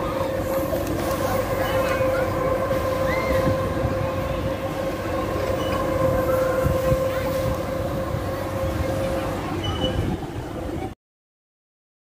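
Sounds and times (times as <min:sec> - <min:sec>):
ride mechanical whine: 0:00.0 - 0:10.9
continuous rumble: 0:00.0 - 0:11.0.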